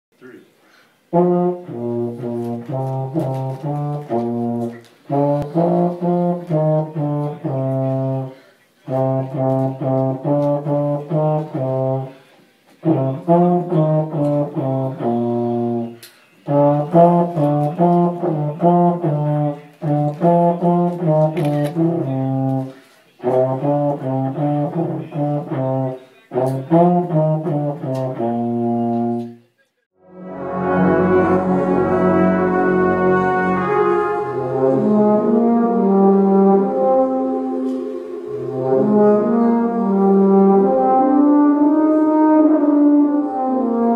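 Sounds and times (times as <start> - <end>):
euphonium playing simple tune: 1.1 - 12.2, 12.8 - 29.2, 30.0 - 43.9.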